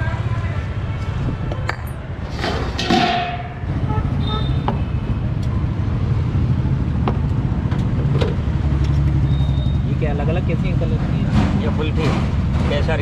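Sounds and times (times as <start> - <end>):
road traffic rumble: 0.0 - 13.0
steel utensils and tins clinking: 2.3 - 3.6
metal lid scraping and clattering: 2.3 - 3.7.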